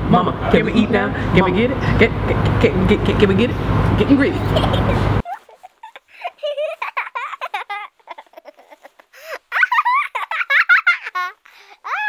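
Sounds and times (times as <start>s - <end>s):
childlike voices giggling and babbling: 4.4s - 12.0s.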